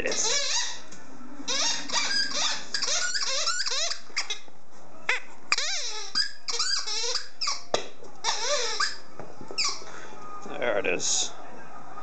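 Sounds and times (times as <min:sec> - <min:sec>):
rubber ball squeaking: 0:00.0 - 0:00.9, 0:01.5 - 0:04.5, 0:05.1 - 0:09.9.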